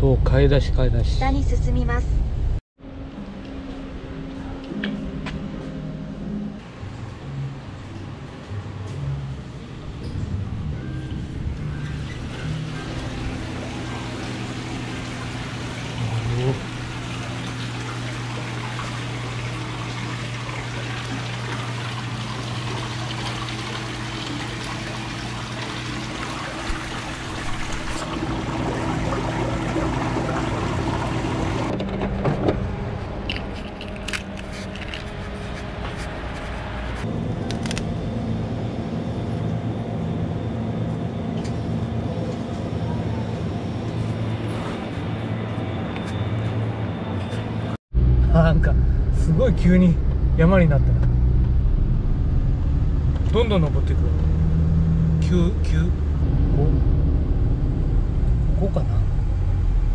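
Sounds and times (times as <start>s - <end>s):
low hum: 0.0s - 59.9s
water running and splashing: 12.4s - 31.7s.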